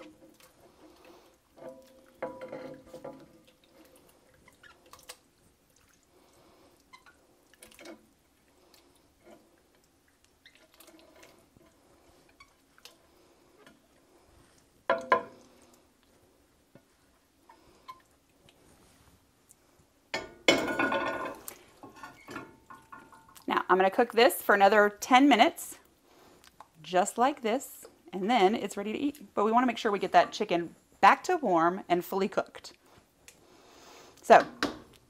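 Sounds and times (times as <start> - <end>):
spatula scraping a pan: 0.0 - 4.8, 9.1 - 9.6, 21.2 - 22.4
soft wet plops: 1.7 - 18.8.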